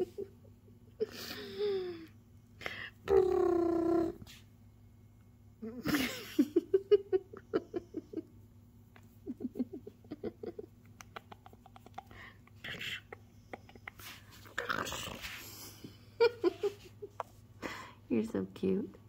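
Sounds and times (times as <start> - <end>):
kitten growling: 3.0 - 4.3, 11.2 - 15.4.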